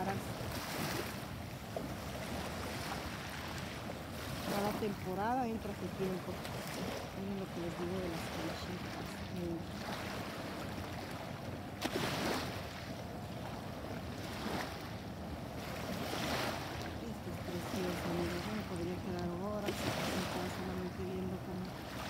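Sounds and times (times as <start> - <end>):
small waves lapping on pebbles: 0.0 - 22.0.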